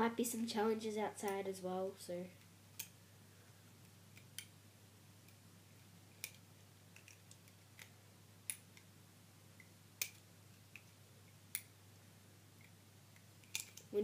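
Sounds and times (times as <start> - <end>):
faint low hum: 0.0 - 14.0
loom bands clicking and snapping: 13.4 - 14.0.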